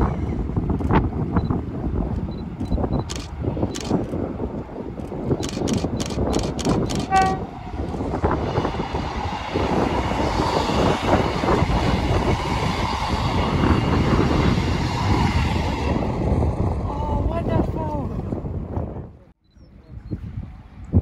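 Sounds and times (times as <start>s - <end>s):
diesel train passing: 0.0s - 17.6s
train horn note: 7.1s - 7.6s.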